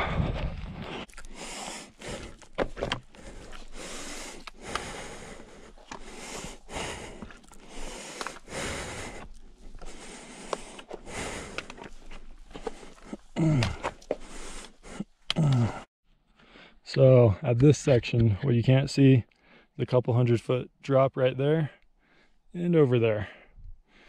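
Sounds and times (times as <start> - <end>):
person breathing hard: 0.0 - 16.8, 23.3 - 24.0
scuffs and scrapes on stone: 9.1 - 14.8.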